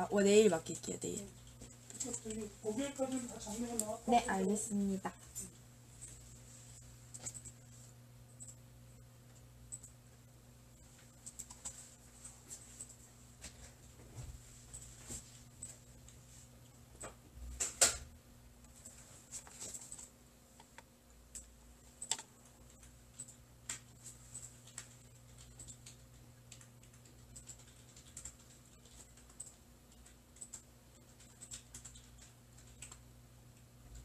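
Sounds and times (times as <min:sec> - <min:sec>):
faint steady hum: 0:00.0 - 0:34.0
computer keyboard typing: 0:00.2 - 0:04.6, 0:07.1 - 0:07.6, 0:08.3 - 0:08.6, 0:09.3 - 0:10.0, 0:10.8 - 0:13.0, 0:18.7 - 0:33.1.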